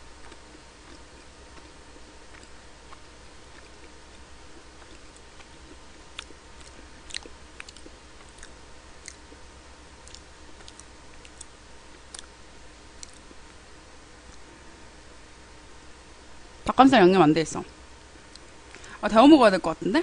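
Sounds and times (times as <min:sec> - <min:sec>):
person chewing: 0:00.2 - 0:12.4, 0:13.0 - 0:13.5.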